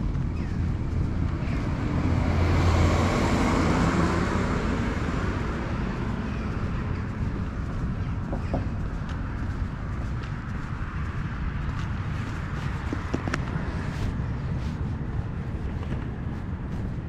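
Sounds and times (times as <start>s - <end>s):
low rumble of traffic: 0.0s - 17.0s
car driving past: 0.4s - 7.3s.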